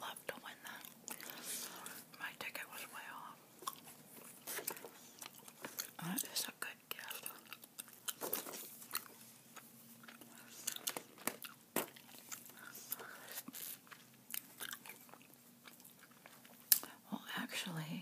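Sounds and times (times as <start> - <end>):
gum chewing mouth smacks: 0.8 - 2.0, 3.6 - 6.0, 7.0 - 17.0.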